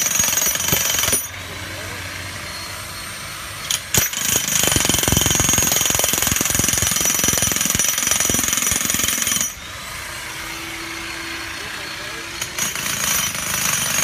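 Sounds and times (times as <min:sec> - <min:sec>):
demolition hammer hammering: 0:04.0 - 0:09.5.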